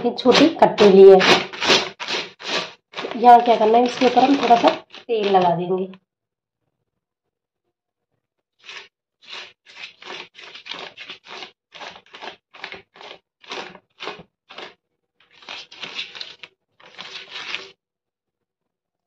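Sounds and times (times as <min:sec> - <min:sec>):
brush spreading oil on plastic sheet: 0:00.2 - 0:05.6, 0:08.6 - 0:17.8.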